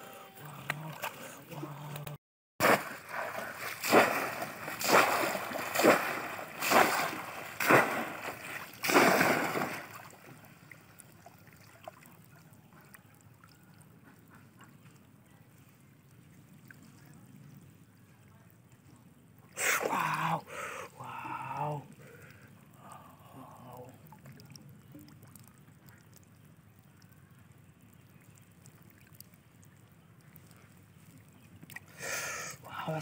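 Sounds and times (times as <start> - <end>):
water sloshing: 0.0 - 13.4
fish trap splashing into water: 2.6 - 10.5.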